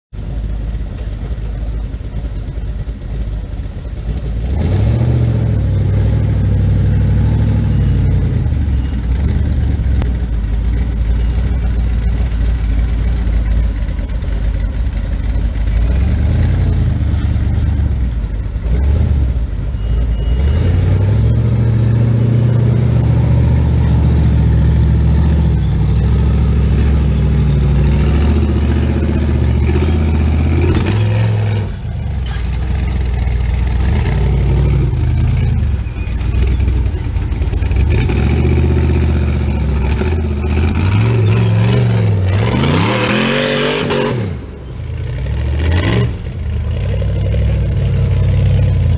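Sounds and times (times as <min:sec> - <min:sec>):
engine revving hard: 0:04.4 - 0:06.5, 0:37.8 - 0:44.5, 0:45.4 - 0:46.2.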